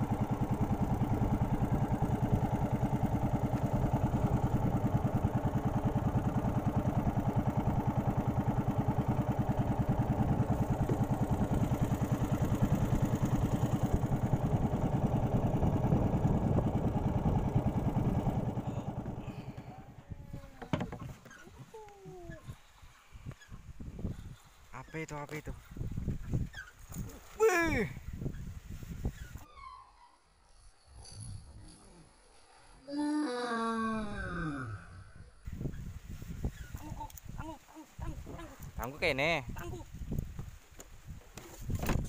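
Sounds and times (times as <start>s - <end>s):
small boat engine running: 0.0s - 29.4s, 35.4s - 40.6s, 41.3s - 42.0s.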